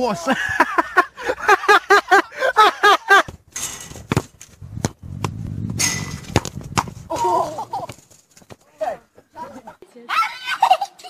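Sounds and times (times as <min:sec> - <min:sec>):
football kick thuds: 0:03.3 - 0:07.3.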